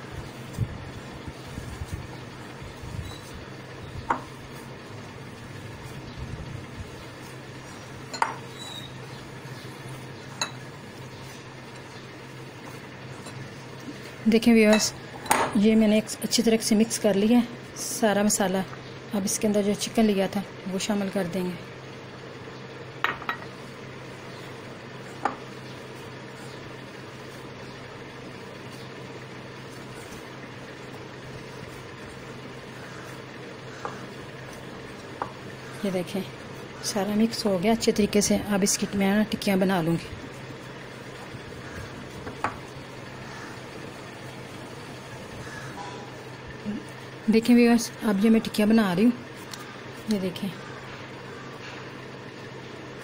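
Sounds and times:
hands kneading mashed potato: 0.0 - 15.0, 23.4 - 45.3
steady low hum: 0.0 - 53.0
glass bowl clinking: 8.1 - 8.4, 10.4 - 10.6.

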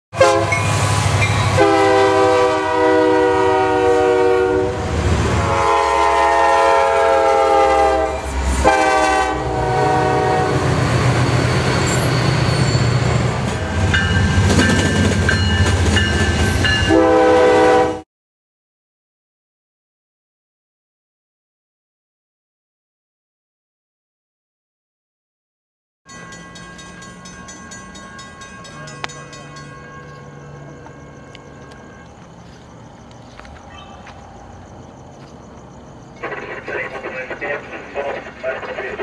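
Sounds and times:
locomotive air horn blasts: 0.1 - 10.9, 16.9 - 18.0
rumble of passing train: 0.2 - 18.0, 26.1 - 39.0.

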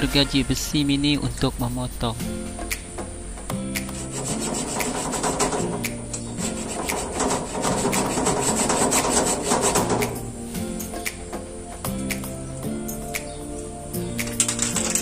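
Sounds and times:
background music: 0.0 - 15.0
hacksaw cutting plastic pipe: 3.8 - 10.2.

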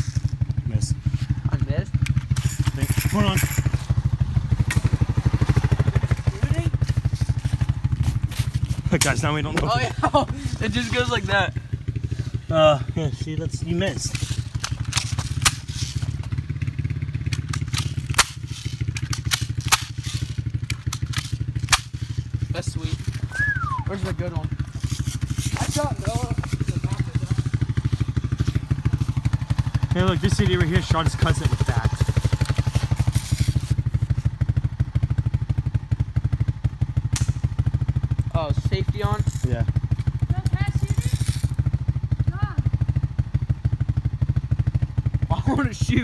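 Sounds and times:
engine throbbing: 0.0 - 46.0
sharp crack: 14.1 - 16.4, 17.2 - 22.3, 37.0 - 37.8.

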